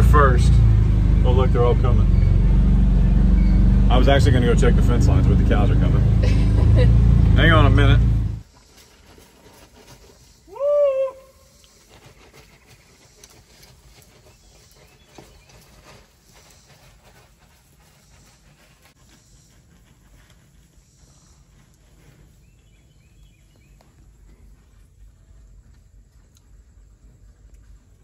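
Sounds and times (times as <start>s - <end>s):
faint cattle hoof steps: 11.5s - 28.0s.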